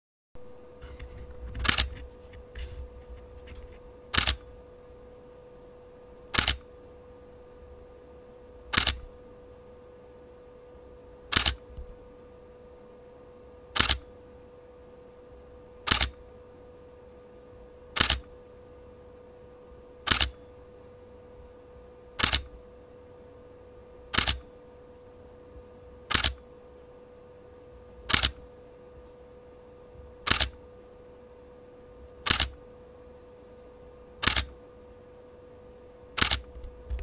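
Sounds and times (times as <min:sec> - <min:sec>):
camera shutter clicks: 0:04.1 - 0:04.4, 0:06.4 - 0:06.6, 0:08.7 - 0:09.1, 0:11.3 - 0:11.6, 0:13.8 - 0:14.0, 0:15.9 - 0:16.2, 0:18.0 - 0:18.3, 0:20.1 - 0:20.3, 0:22.2 - 0:22.5, 0:24.2 - 0:24.4, 0:26.1 - 0:26.4, 0:28.1 - 0:28.4, 0:30.3 - 0:30.6, 0:32.3 - 0:32.6, 0:34.2 - 0:34.5, 0:36.2 - 0:36.5.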